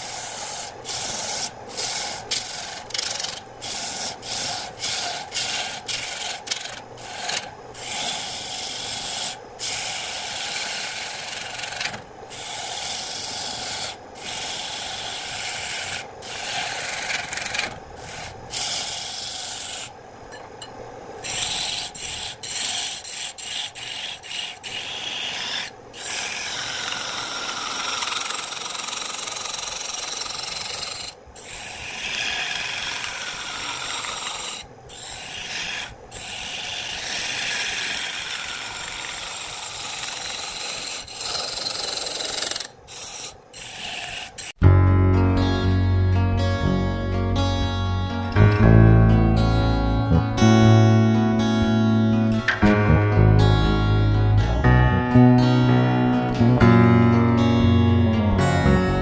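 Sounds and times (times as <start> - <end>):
lathe gouge cutting wood: 0.0 - 19.9, 21.2 - 44.6.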